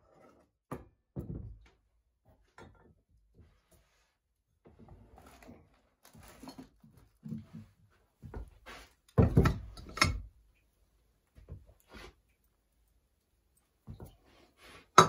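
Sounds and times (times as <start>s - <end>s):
objects bumping and knocking: 6.1s - 10.3s, 13.8s - 15.0s.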